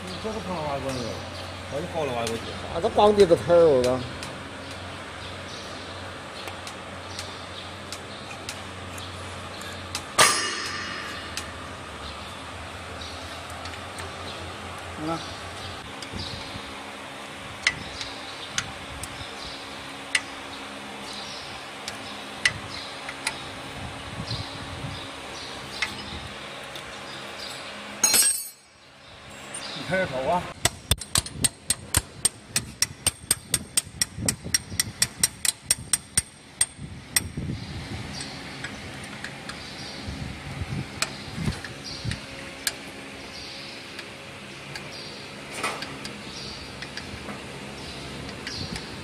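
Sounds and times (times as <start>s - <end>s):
steady low hum: 0.0s - 49.0s
sharp metallic clicks: 6.4s - 11.7s, 30.5s - 37.4s
ringing metal clank: 10.2s - 11.6s, 28.0s - 28.7s.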